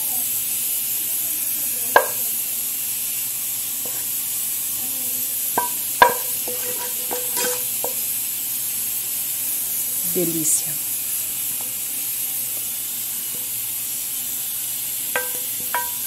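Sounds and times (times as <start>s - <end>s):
food sizzling: 0.0s - 16.0s
metal clinks on pan: 2.0s - 2.2s, 5.6s - 8.0s, 15.2s - 16.0s.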